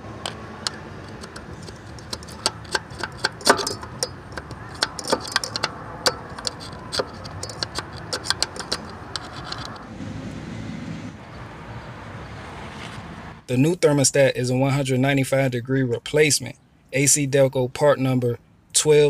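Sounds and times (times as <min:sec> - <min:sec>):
metal scraper scraping gasket: 0:00.2 - 0:09.8.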